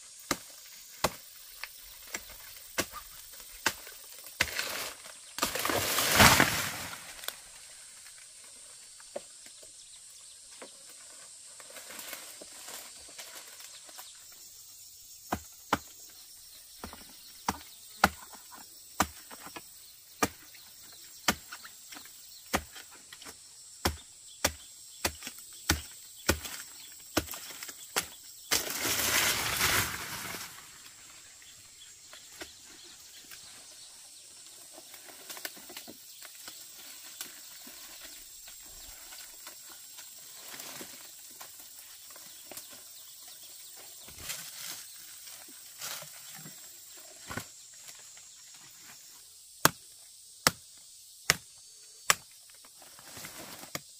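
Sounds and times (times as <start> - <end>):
fruit bunch crashing through leaves: 4.4 - 7.5, 28.5 - 30.9.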